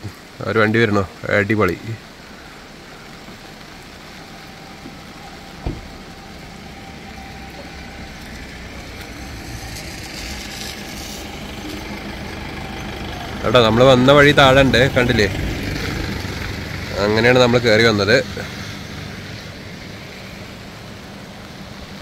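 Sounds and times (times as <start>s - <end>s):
vehicle engine and tyres approaching: 2.0s - 22.0s.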